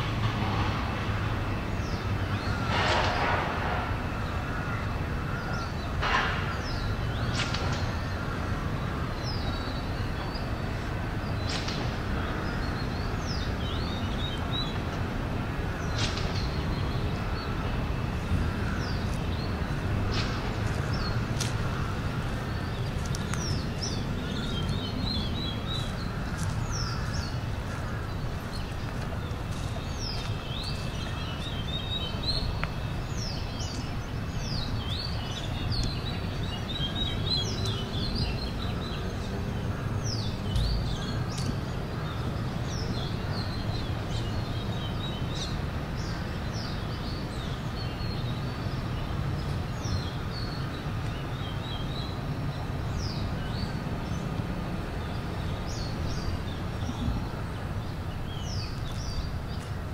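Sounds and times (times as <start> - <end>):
low rumble of city traffic: 0.0 - 59.9
small birds chirping: 15.7 - 59.9.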